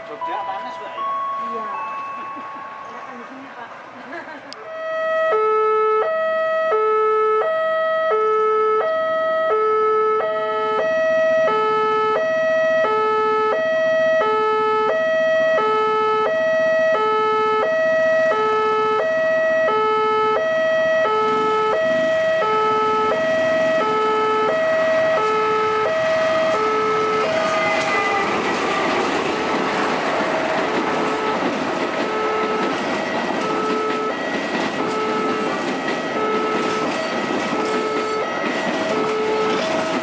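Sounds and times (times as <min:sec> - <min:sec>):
passenger train passing: 0:00.0 - 0:06.7, 0:07.5 - 0:40.0
two-tone crossing alarm: 0:04.6 - 0:40.0.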